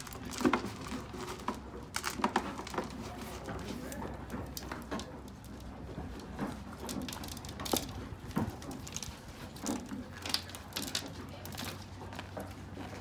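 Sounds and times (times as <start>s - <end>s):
horse chewing grain: 0.0s - 13.0s.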